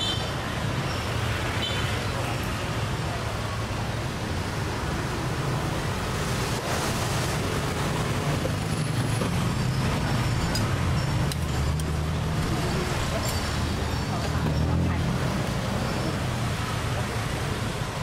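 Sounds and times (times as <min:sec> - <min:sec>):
street traffic: 0:00.0 - 0:18.0.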